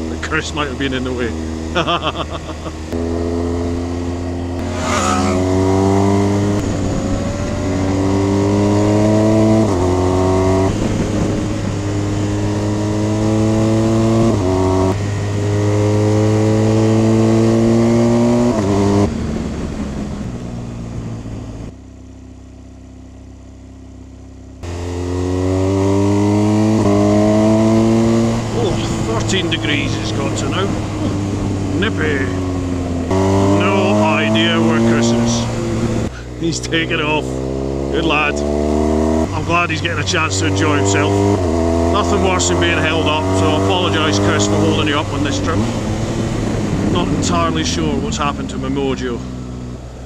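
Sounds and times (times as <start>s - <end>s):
motorcycle engine accelerating: 0.0s - 50.0s
wind noise: 4.6s - 15.6s, 44.2s - 48.2s.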